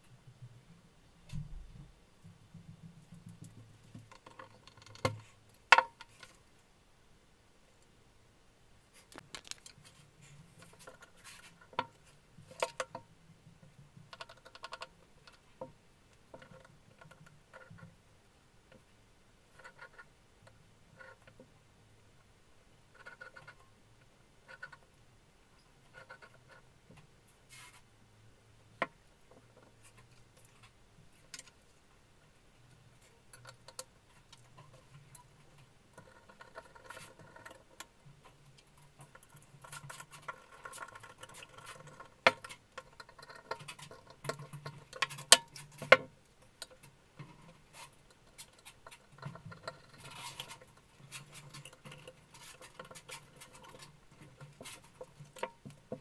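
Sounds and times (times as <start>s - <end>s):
light taps and scrapes of parts: 8.9s - 18.0s, 25.6s - 27.9s, 32.7s - 56.0s.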